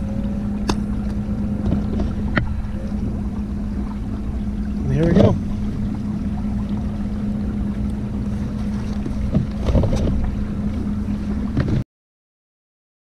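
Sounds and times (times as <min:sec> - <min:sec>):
electric motor hum: 0:00.0 - 0:11.6
water moving past boat: 0:00.0 - 0:11.8.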